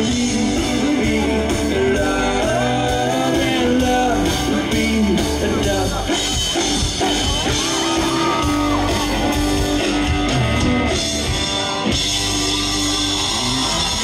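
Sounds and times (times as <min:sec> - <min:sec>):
vocals sung over music: 0:00.0 - 0:08.8
drums: 0:00.0 - 0:14.0
guitar: 0:00.0 - 0:14.0.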